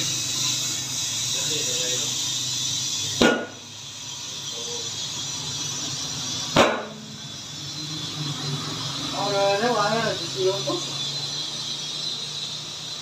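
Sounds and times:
compressed air hissing into tyre: 0.0s - 13.0s.

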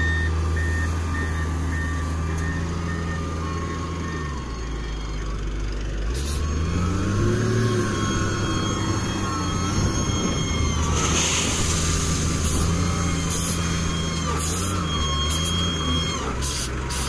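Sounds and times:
reversing beeps: 0.0s - 5.4s, 6.4s - 10.9s, 12.9s - 16.3s
wheel loader diesel engine: 0.0s - 17.0s.

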